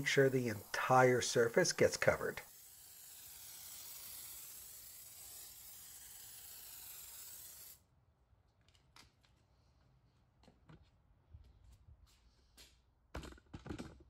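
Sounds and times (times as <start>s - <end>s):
pressure sprayer hissing: 0.0s - 7.8s.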